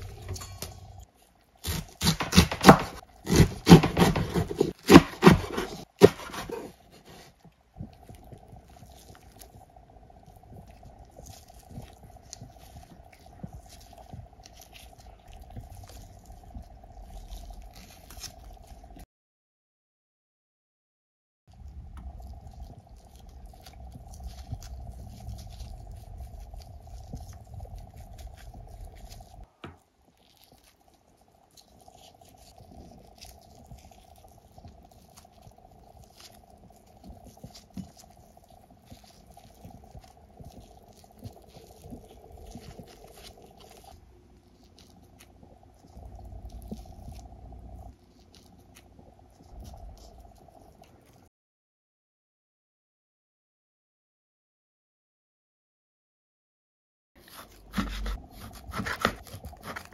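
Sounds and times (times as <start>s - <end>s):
wet sticky squishes of rice: 5.8s - 19.0s, 21.5s - 51.3s, 57.2s - 59.9s
steady faint hum: 30.6s - 51.3s.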